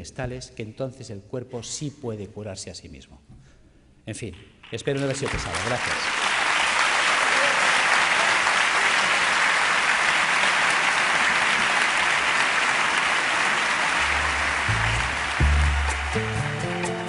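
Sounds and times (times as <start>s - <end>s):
audience applauding: 4.8s - 17.0s
music: 14.0s - 17.0s.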